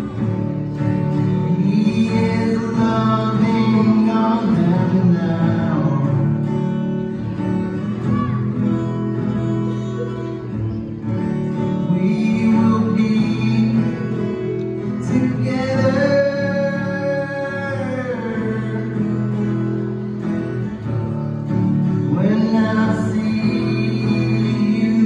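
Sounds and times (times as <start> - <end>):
acoustic guitars playing: 0.0 - 25.0
man singing: 1.0 - 6.9, 11.4 - 20.4, 21.4 - 25.0.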